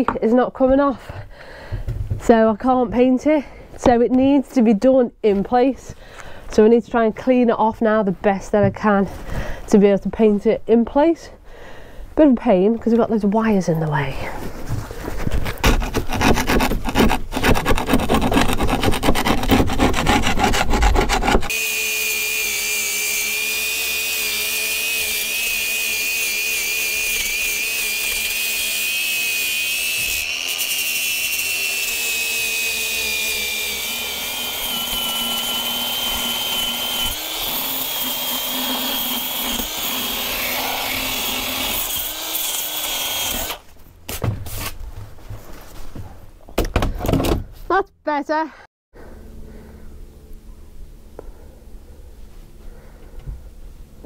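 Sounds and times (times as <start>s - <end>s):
rasping against wood: 15.4s - 21.6s
angle grinder whining: 21.5s - 43.6s.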